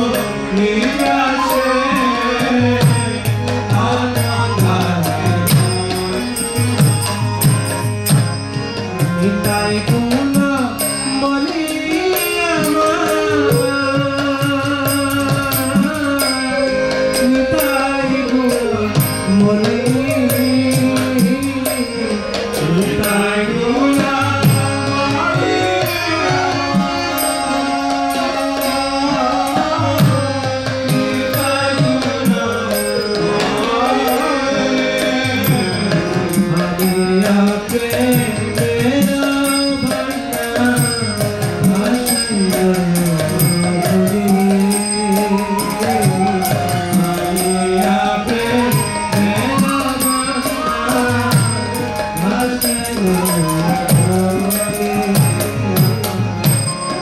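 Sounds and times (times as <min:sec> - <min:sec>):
person singing a chant: 0:00.0 - 0:05.8.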